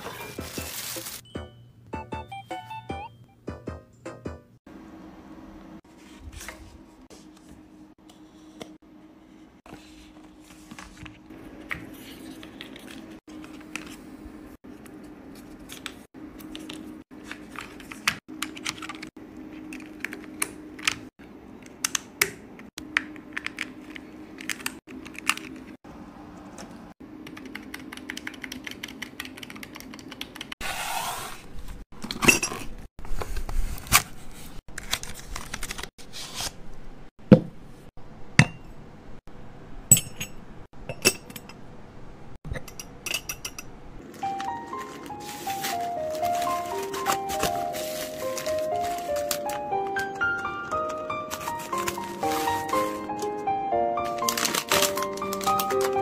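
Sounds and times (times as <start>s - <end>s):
paper rustling: 0.0s - 1.2s, 33.1s - 36.6s, 44.2s - 53.4s, 54.0s - 56.0s.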